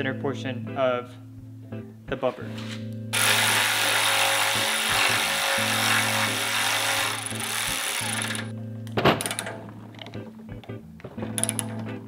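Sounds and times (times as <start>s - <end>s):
electric ratchet running: 3.2s - 8.5s.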